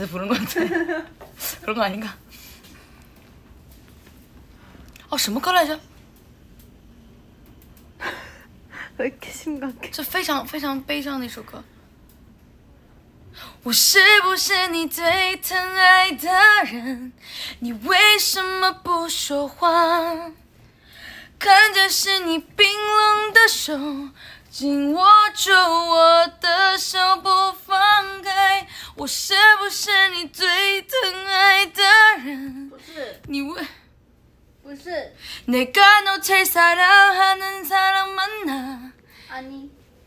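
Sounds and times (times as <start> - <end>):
woman singing unaccompanied: 13.4 - 20.4, 21.4 - 33.8, 35.4 - 39.0.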